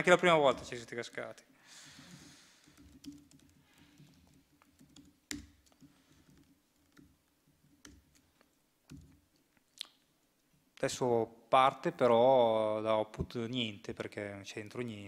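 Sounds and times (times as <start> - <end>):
laptop keyboard keystrokes: 2.6 - 9.3.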